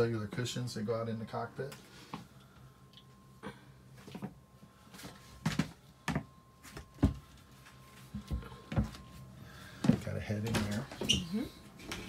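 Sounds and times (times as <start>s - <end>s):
faint steady tone: 0.0s - 12.0s.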